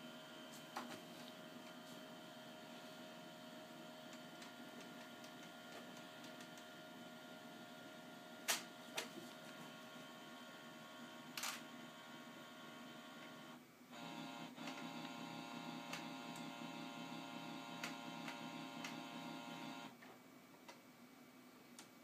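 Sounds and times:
printer motor whining: 0.0 - 20.0
printer clicks: 17.7 - 19.1.

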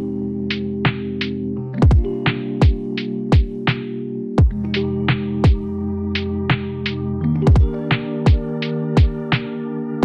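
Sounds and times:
electronic music: 0.0 - 10.0
held synthesizer chords: 0.0 - 10.0
deep kick drums: 1.8 - 2.8, 3.4 - 3.6, 4.4 - 4.8, 5.4 - 5.7, 7.5 - 9.3.

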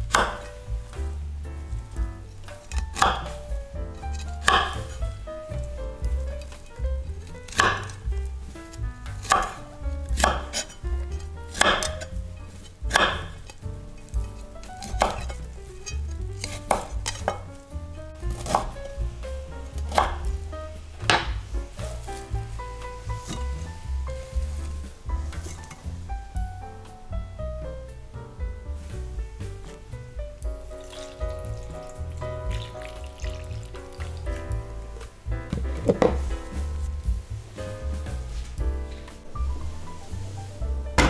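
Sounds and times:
knife chopping on cutting board: 2.7 - 3.4, 7.5 - 8.0, 9.2 - 9.6, 10.2 - 10.7, 11.5 - 12.1, 12.9 - 13.5, 14.2 - 15.4, 18.3 - 18.8, 19.8 - 20.3.

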